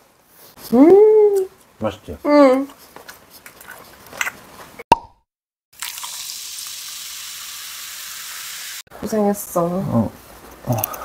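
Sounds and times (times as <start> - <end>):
beer foam fizzing: 5.8 - 8.8.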